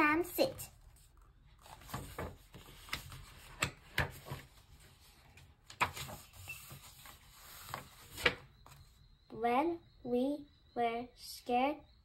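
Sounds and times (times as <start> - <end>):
book pages turning: 0.3 - 8.8.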